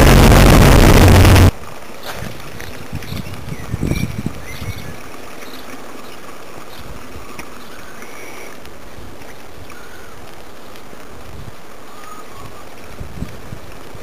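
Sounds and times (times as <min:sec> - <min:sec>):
wind noise on microphone: 0:00.0 - 0:05.1, 0:11.0 - 0:14.0.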